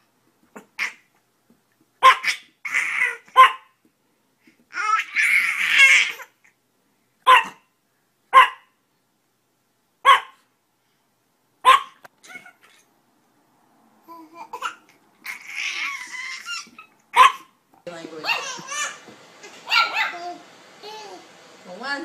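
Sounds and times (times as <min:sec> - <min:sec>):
dog barking: 0:02.0 - 0:02.4, 0:03.3 - 0:03.8, 0:07.2 - 0:07.7, 0:08.3 - 0:08.8, 0:10.0 - 0:10.4, 0:11.6 - 0:12.0, 0:17.1 - 0:17.5, 0:19.6 - 0:20.4.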